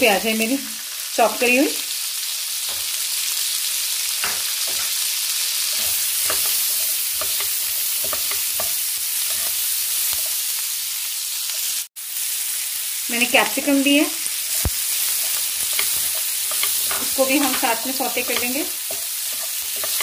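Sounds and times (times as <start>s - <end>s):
onions sizzling in a frying pan: 0.0s - 20.0s
spatula scraping and tapping pan: 4.2s - 5.0s, 5.7s - 10.4s, 14.2s - 20.0s.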